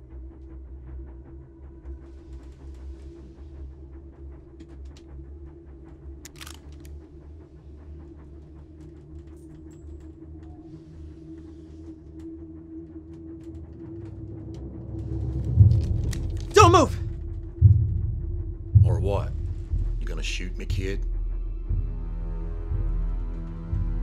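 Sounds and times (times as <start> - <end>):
small clicks and creaks: 6.2 - 7.0.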